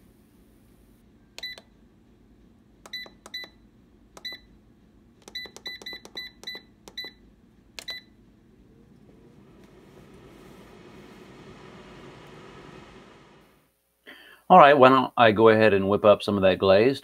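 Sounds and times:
air fryer short high beeps: 0:01.4 - 0:01.6, 0:02.9 - 0:03.6, 0:05.4 - 0:07.2, 0:07.8 - 0:08.2.

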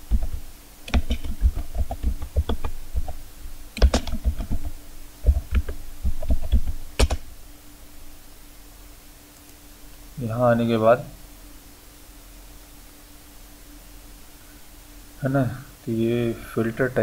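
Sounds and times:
typing on computer keyboard: 0:00.1 - 0:03.2, 0:03.8 - 0:07.2.

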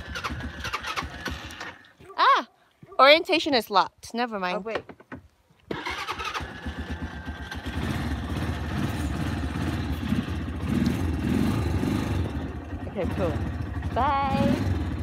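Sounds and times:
quad bike engine running: 0:00.0 - 0:01.9, 0:05.8 - 0:15.0.

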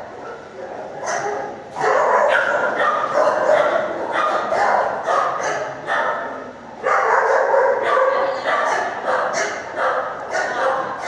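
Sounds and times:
dogs barking rapidly: 0:00.4 - 0:11.0.

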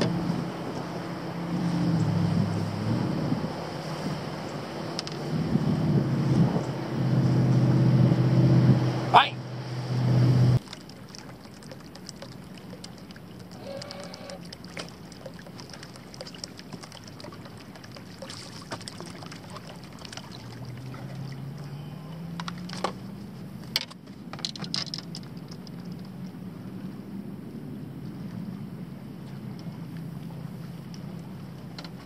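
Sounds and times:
water lapping softly: 0:00.0 - 0:32.0
fishing tackle clicks: 0:23.7 - 0:26.1.

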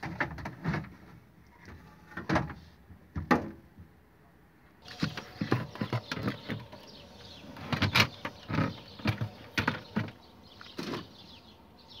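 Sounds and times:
knocks and clatter in refrigerator: 0:00.0 - 0:01.0.

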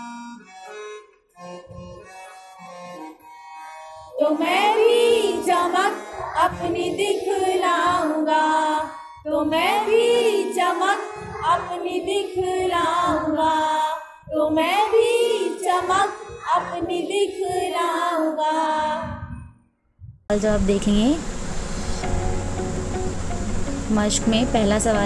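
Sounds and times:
person singing a children's poem: 0:04.1 - 0:19.4.

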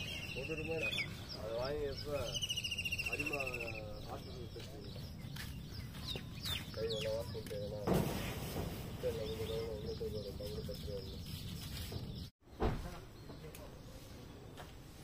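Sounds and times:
faint bird chirps: 0:00.0 - 0:07.8
outdoor background noise: 0:00.0 - 0:15.0.

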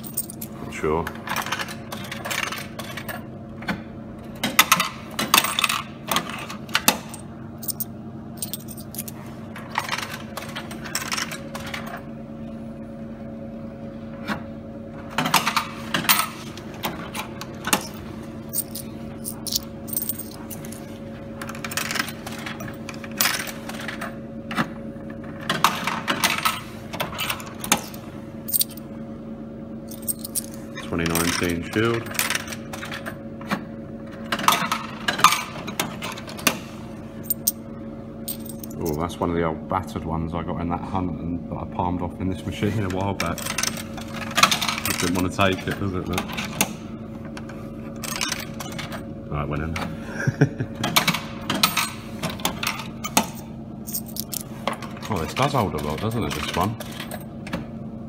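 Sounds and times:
coins clattering in machine: 0:00.0 - 0:00.6, 0:01.3 - 0:03.3, 0:04.4 - 0:12.0, 0:17.0 - 0:24.0, 0:25.5 - 0:28.8, 0:29.9 - 0:33.1, 0:37.3 - 0:37.6, 0:38.3 - 0:39.1, 0:43.2 - 0:45.6, 0:48.0 - 0:49.0, 0:50.9 - 0:57.3
steady hum: 0:00.0 - 0:55.4.

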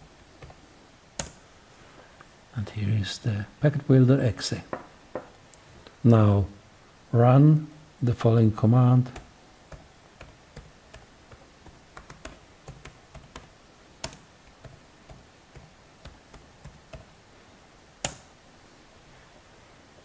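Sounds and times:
keyboard key clicks: 0:01.2 - 0:01.4, 0:12.0 - 0:17.1.

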